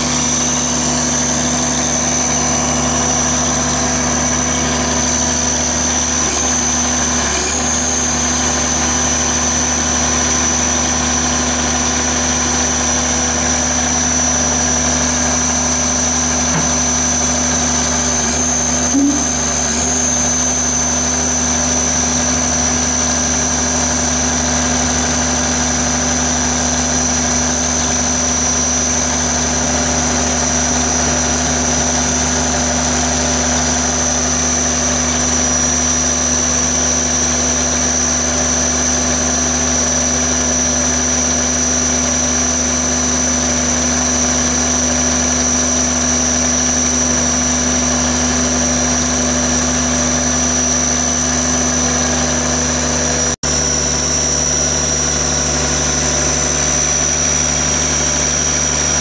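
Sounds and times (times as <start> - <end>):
diesel engine running: 0.0 - 59.0
high-pitched whine: 15.0 - 23.6, 50.1 - 59.0.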